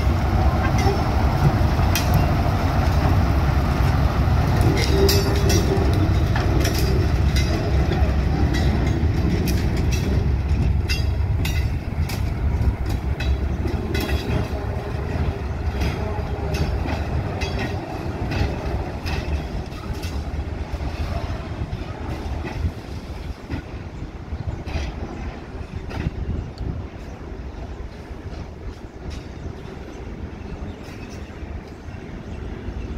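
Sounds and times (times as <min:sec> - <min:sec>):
train wheels clacking over rail joints: 0:00.0 - 0:27.2
locomotive engine low rumble: 0:00.0 - 0:32.9.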